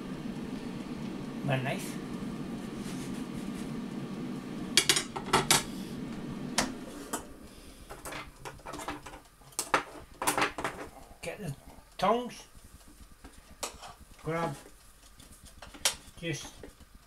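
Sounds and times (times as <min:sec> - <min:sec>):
air fryer fan whirring: 0:00.0 - 0:17.0.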